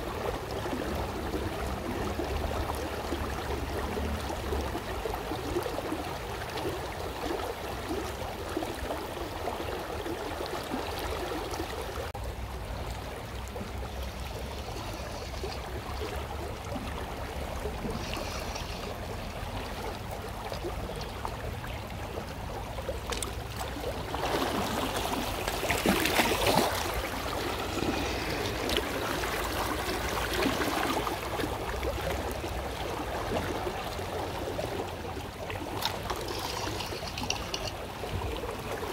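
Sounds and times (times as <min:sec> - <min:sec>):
river water rushing: 0:23.0 - 0:38.9.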